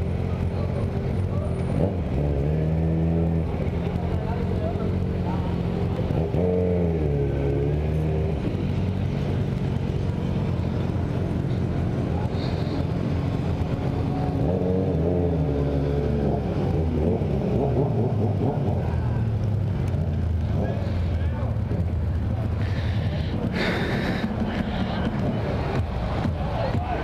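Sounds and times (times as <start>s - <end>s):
motorcycle engine revving: 0.0s - 27.0s.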